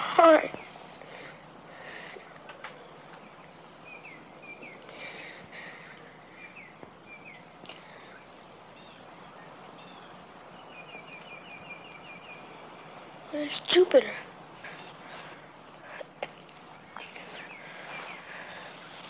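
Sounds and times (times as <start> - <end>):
steady background hiss: 0.0 - 19.0
faint bird chirps: 0.4 - 19.0.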